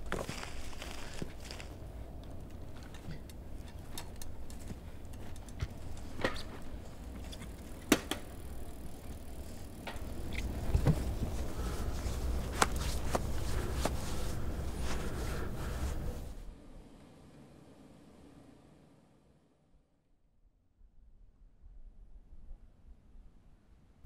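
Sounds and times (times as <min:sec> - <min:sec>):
bicycle clicks and rattles: 0:00.0 - 0:16.3
low steady rumble: 0:00.0 - 0:18.6.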